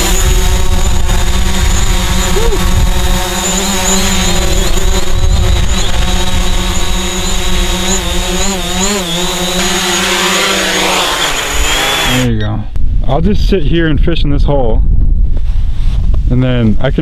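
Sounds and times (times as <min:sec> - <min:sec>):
drone propellers whining: 0:00.0 - 0:12.8.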